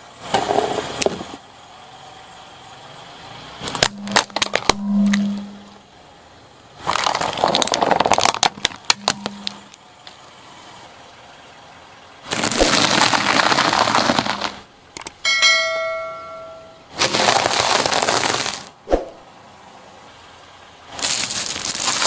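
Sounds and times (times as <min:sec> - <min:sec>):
plastic bowl cracking: 0:03.7 - 0:05.3, 0:06.8 - 0:09.6
tyre crushing crunchy pieces: 0:03.7 - 0:05.5, 0:06.8 - 0:09.8, 0:12.2 - 0:14.6, 0:17.0 - 0:18.7, 0:21.0 - 0:22.0
notification ding: 0:03.9 - 0:05.7, 0:15.2 - 0:16.8.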